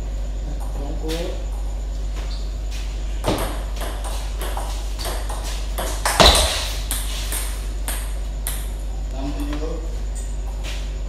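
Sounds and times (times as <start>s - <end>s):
table tennis ball hits: 3.2s - 8.8s.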